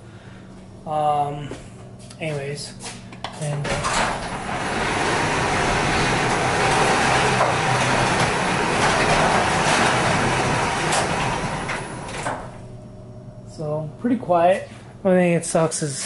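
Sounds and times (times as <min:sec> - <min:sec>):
garage door opener running: 0:03.4 - 0:13.7.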